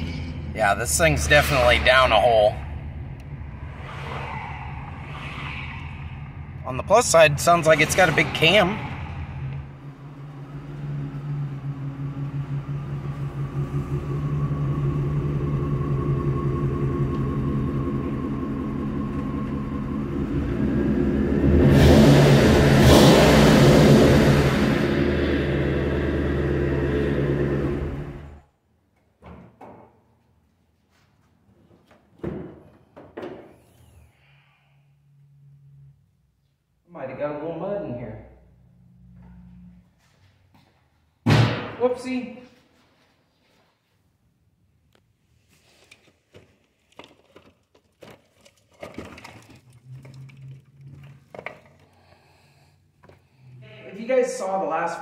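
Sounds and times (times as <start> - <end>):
car engine running rough: 6.2 - 28.4.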